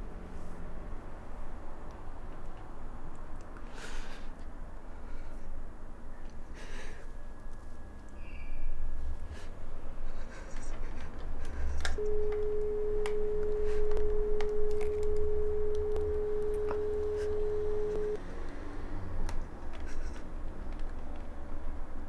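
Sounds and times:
telephone dial tone: 12.0 - 18.2.

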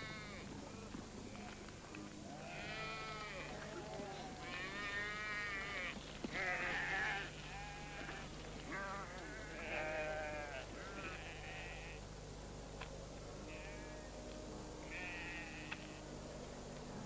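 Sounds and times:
sheep bleating: 2.4 - 12.0, 13.5 - 14.1, 14.9 - 16.0.

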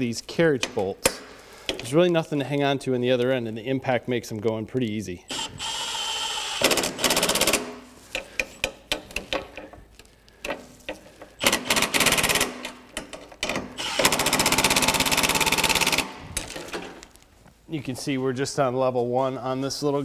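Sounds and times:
impact driver hammering bolts: 5.3 - 9.7, 11.4 - 16.2.

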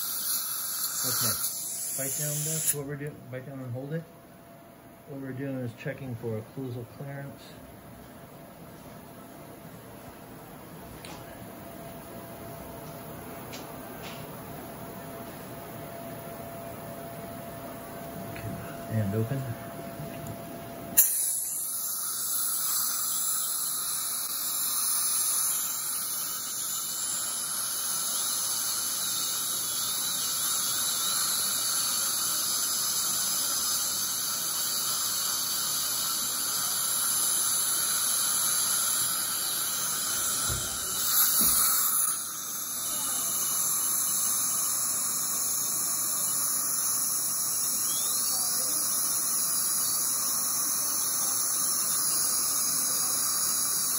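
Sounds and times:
suction hissing: 0.0 - 2.8, 21.0 - 53.9
high-speed dental drill whining: 0.0 - 3.7, 18.5 - 53.9.

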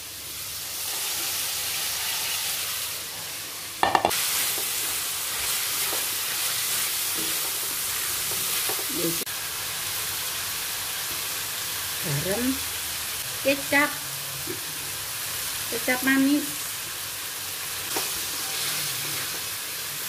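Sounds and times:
food sizzling in oil: 0.0 - 20.0
spatula clattering on wok: 3.8 - 4.2.

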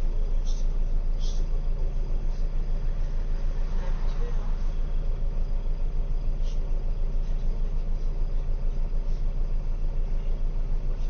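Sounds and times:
bus engine rumbling: 0.0 - 11.0.

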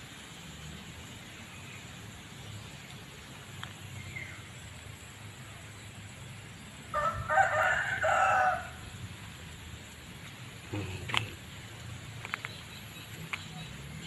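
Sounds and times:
rooster crowing: 6.9 - 8.9.

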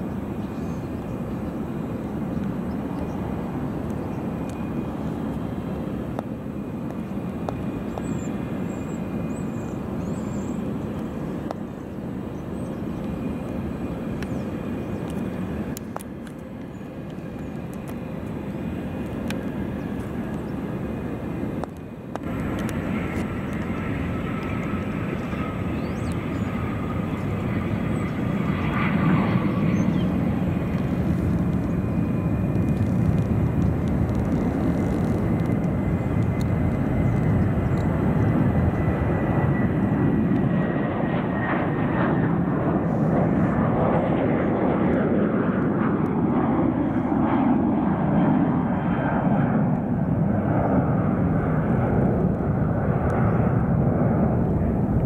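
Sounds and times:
high turbine whine: 0.0 - 55.0
jet engines rushing: 0.0 - 55.0.

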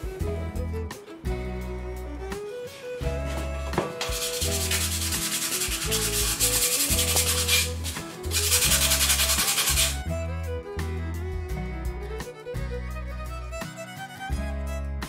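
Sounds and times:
background music: 0.0 - 15.0
sandpaper rasping on wood: 4.0 - 10.0.

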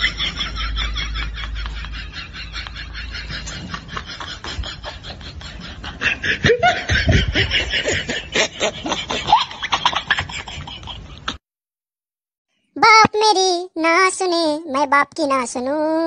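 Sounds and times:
people laughing: 0.0 - 11.4.

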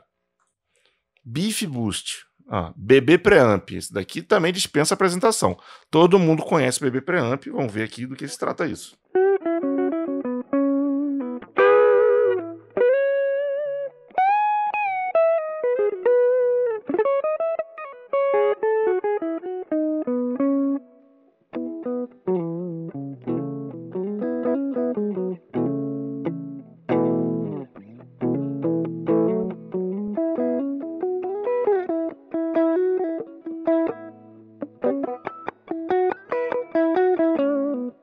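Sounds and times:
electric guitar playing: 9.1 - 38.0.

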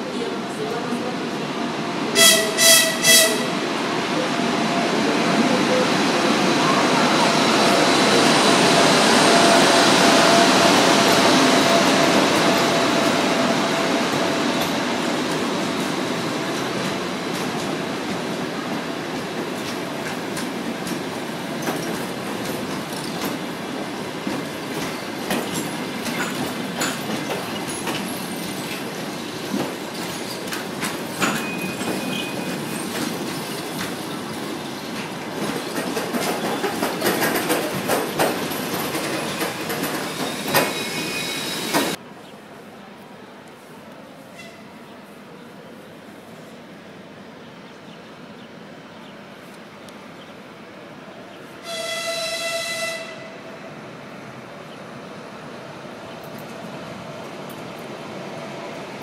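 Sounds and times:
station ambience: 0.0 - 51.6
wheels clicking over rail joints: 19.1 - 40.8
high wheel squeals: 39.2 - 42.0.

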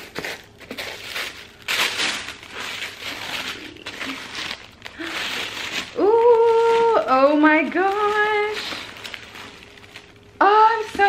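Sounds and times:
tissue paper rustling: 0.0 - 11.0.

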